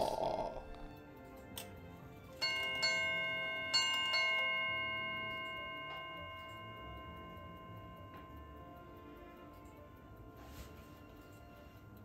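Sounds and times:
clock bell striking: 2.4 - 10.4.

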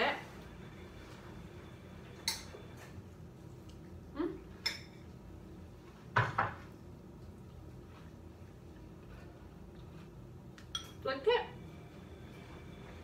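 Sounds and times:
spoon clinking against bowl: 10.6 - 11.0.

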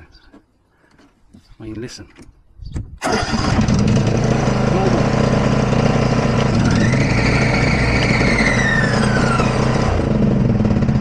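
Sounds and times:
mower whine: 3.0 - 11.0
ride-on mower engine running: 3.0 - 11.0.

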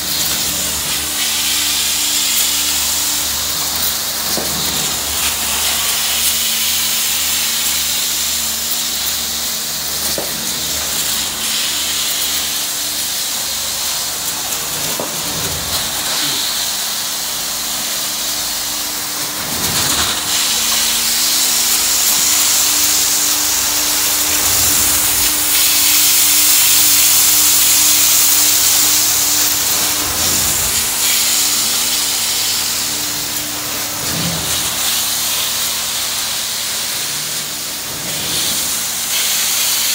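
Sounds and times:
extraction wand hissing: 9.5 - 39.9
steady low hum: 13.3 - 35.9.

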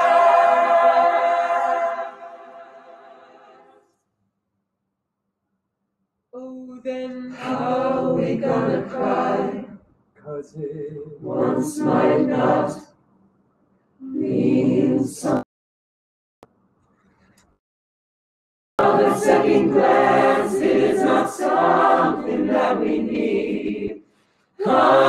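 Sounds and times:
mixed voices singing a cappella: 0.0 - 3.8, 7.2 - 12.9, 14.0 - 15.4, 18.8 - 24.0, 24.6 - 25.0
click: 16.4 - 17.6.

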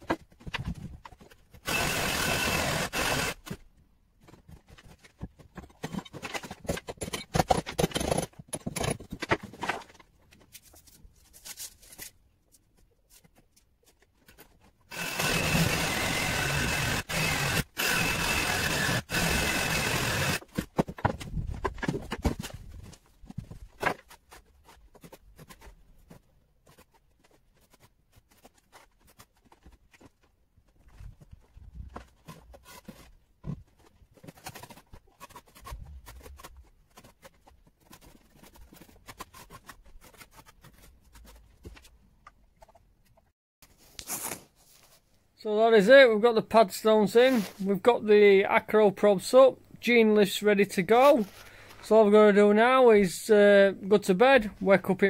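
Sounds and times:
knocks and scrapes on blocks: 0.0 - 43.3
power drill boring into concrete: 1.6 - 3.5, 14.9 - 20.4.

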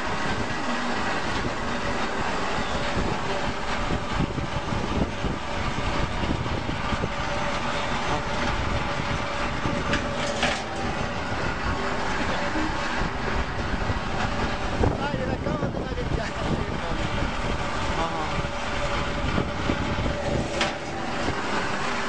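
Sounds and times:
cable stripping machine clattering: 7.0 - 14.3, 20.1 - 21.7.

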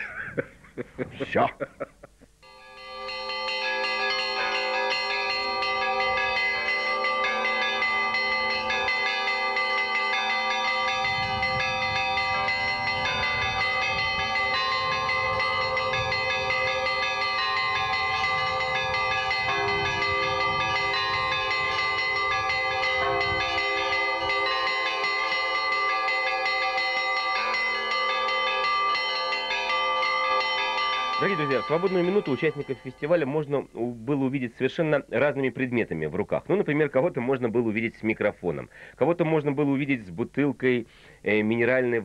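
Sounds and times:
church bells ringing: 2.4 - 35.0.

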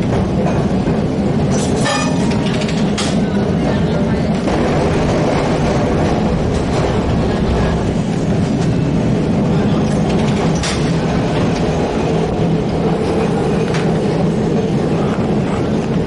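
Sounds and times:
streetcar wheels rumbling on rails: 0.0 - 16.0.

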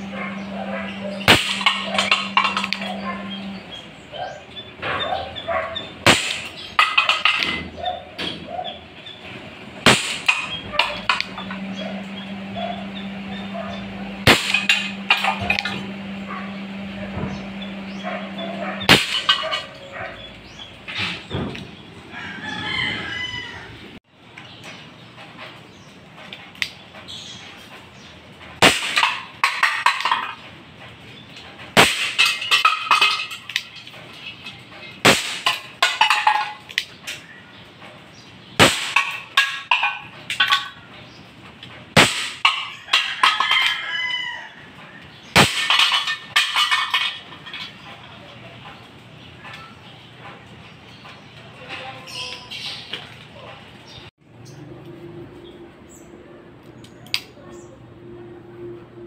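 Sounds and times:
airsoft revolver shots: 6.0 - 6.6, 9.8 - 10.6, 18.9 - 19.3, 28.6 - 29.1, 31.8 - 32.2, 35.0 - 35.5, 38.6 - 39.2, 42.0 - 42.4, 45.4 - 45.7
rooster crowing: 22.1 - 24.0, 42.8 - 45.0.

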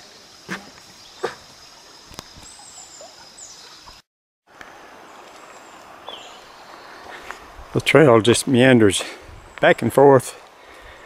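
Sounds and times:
bird chirps: 0.1 - 4.0, 5.5 - 7.2.

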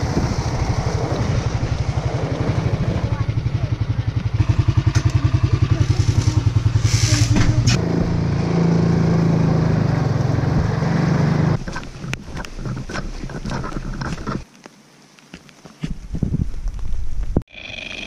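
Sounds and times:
atv engine idling and running: 0.0 - 14.4.

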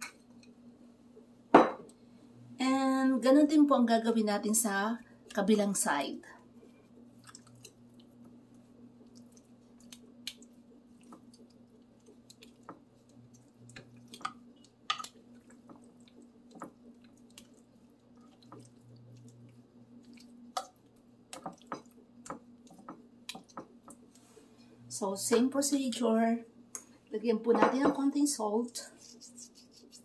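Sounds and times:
faint steady hum: 0.0 - 30.0
wet squishes of raw meat: 7.1 - 8.2, 9.0 - 24.2.

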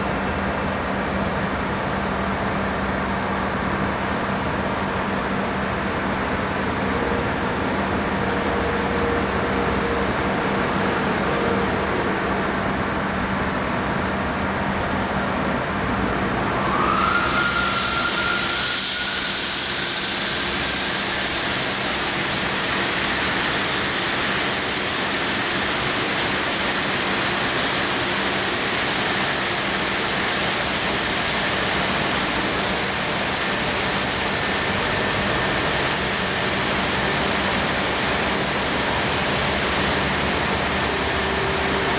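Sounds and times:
short rising whine: 16.4 - 25.1
water jets hissing: 16.6 - 41.9.

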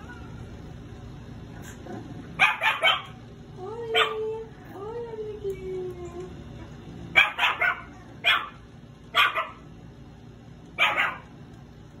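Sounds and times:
puppy barking: 2.4 - 3.2, 3.9 - 4.2, 7.1 - 9.7, 10.8 - 11.3.

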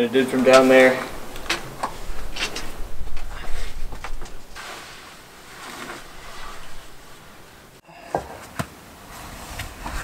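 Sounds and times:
steady hiss: 0.1 - 7.8
climbing shoes scraping on rock: 0.3 - 10.0.

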